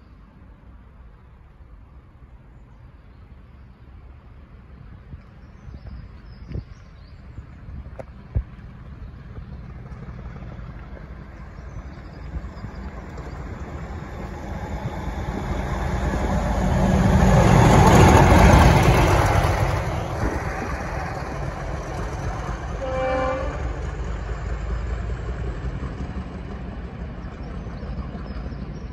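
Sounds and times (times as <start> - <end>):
diesel locomotive passing: 0.1 - 28.9
train horn note: 22.8 - 23.8.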